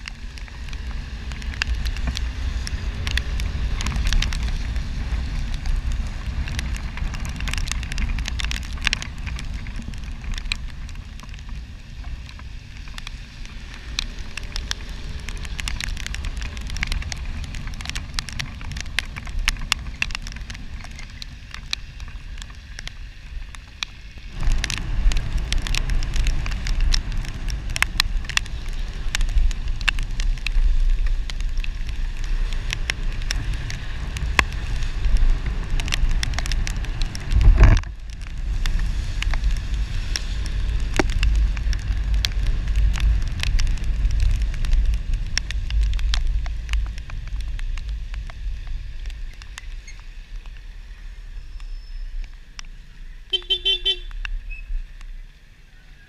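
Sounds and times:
raindrops ticking on camera: 0.0s - 55.7s
low wind rumble: 0.0s - 56.0s.

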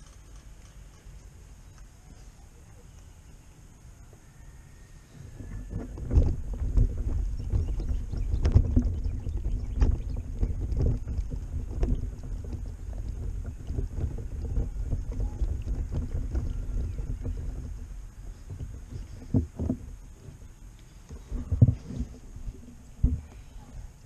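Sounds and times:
wind buffeting microphone: 5.0s - 24.0s
soft knocks and scrapes: 9.8s - 23.8s.

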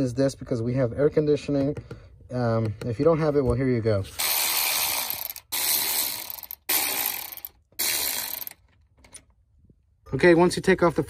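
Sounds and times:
cordless ratchet running: 4.2s - 8.7s.

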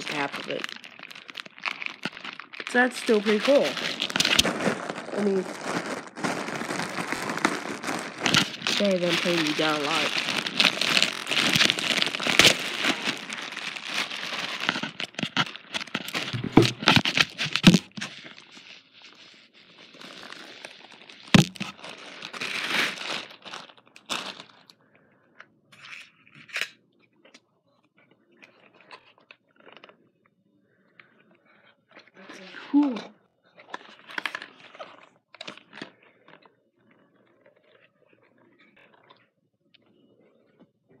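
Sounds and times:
packaging crinkling and rustling: 0.0s - 24.8s, 33.6s - 36.5s.

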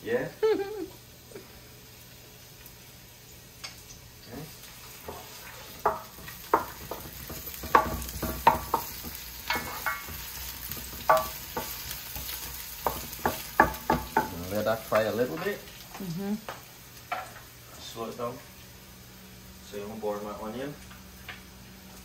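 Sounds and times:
onions sizzling in hot oil: 0.0s - 22.0s
wooden spoon knocking and scraping pan: 5.0s - 15.6s.

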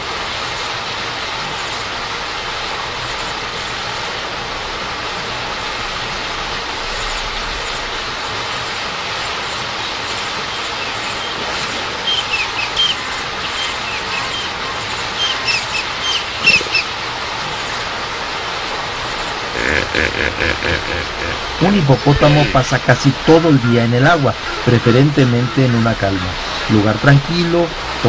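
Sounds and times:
flowing river water: 0.0s - 28.0s
bird chirping: 12.0s - 16.9s.

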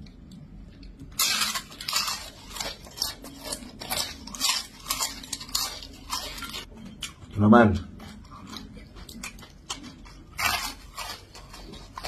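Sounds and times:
crunching crispy food: 0.6s - 12.0s.

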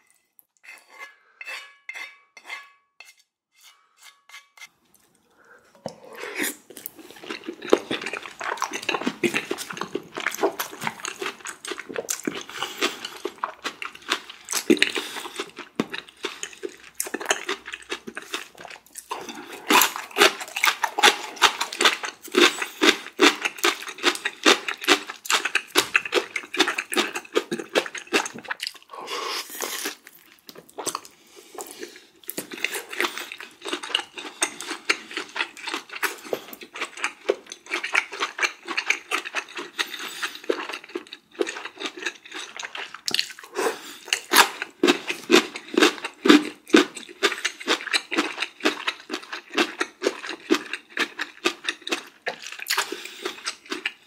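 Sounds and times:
chewing and mouth noises: 4.9s - 54.0s.

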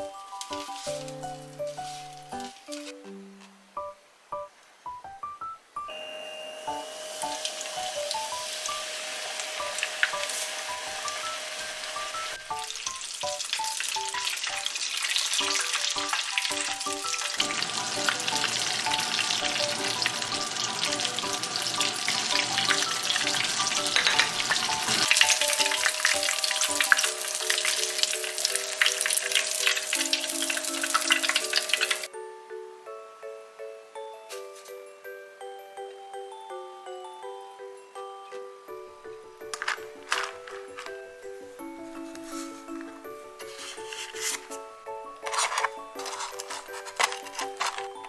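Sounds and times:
hot oil crackling and sizzling: 0.0s - 2.9s, 6.6s - 32.1s
light background music: 0.0s - 48.0s.

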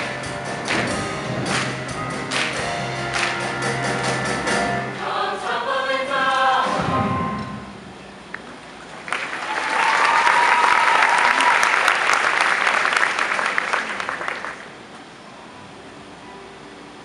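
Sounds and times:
audience applause: 8.9s - 14.8s.

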